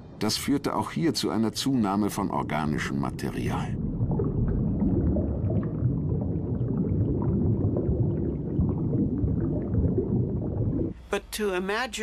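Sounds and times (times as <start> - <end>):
underwater rumble of churning seawater: 3.6 - 11.0.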